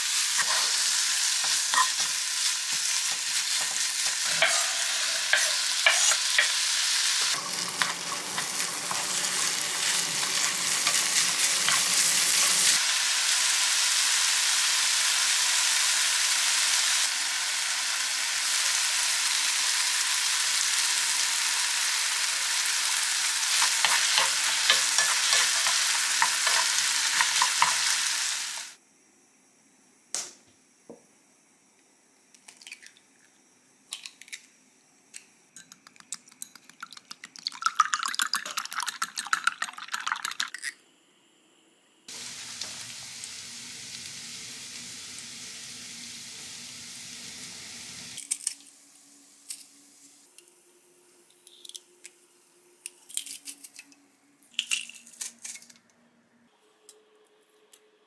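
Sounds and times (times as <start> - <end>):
food sizzling in a frying pan: 0.0 - 28.8, 42.1 - 50.3
steady hiss: 0.0 - 32.3, 40.9 - 52.8.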